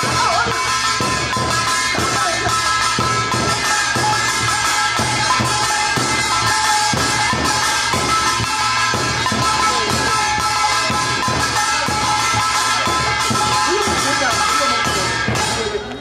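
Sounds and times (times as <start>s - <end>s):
folk drums beating: 0.0s - 16.0s.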